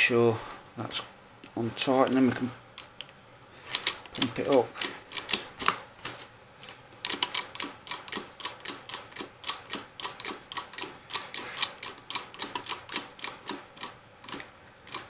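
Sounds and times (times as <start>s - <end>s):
hydraulic jack pumping clicks: 7.0s - 15.0s.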